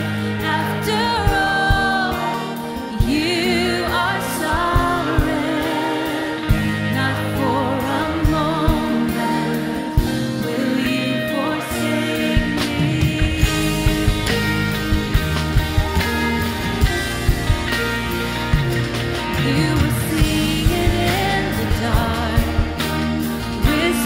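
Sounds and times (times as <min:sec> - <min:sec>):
person singing with vibrato: 0:00.0 - 0:14.6, 0:19.2 - 0:24.0
band with bass and keyboard: 0:00.0 - 0:24.0.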